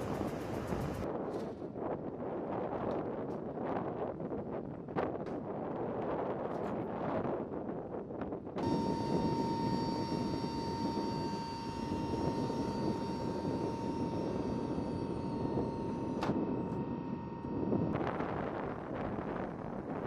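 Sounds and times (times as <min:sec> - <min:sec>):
turboprop engine whine: 0:00.0 - 0:20.0.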